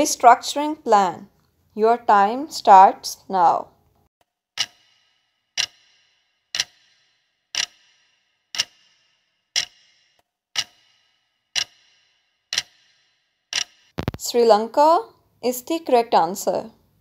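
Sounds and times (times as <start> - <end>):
sharp clock ticks: 4.6 - 14.1.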